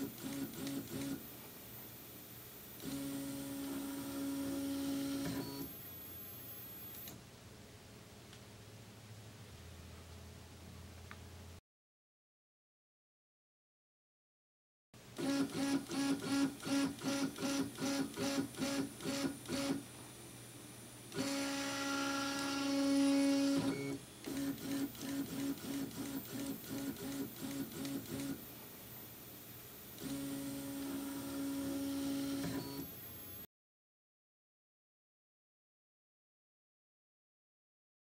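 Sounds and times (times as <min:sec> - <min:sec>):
stepper motor buzzing whine: 0:21.2 - 0:28.4, 0:30.0 - 0:32.9.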